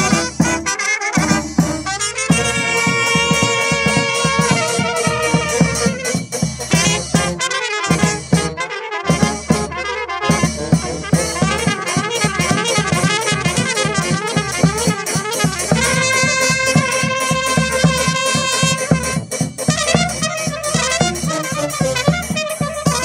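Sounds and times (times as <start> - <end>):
bass drum beating: 0.0 - 7.4, 8.0 - 23.0
brass band playing: 0.0 - 23.0.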